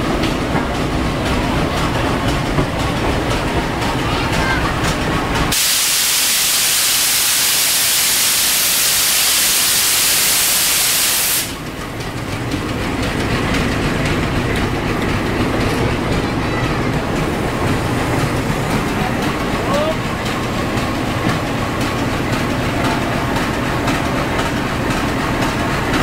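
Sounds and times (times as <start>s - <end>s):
diesel locomotive engine rumbling: 0.0s - 26.0s
loud air hiss: 5.5s - 11.6s.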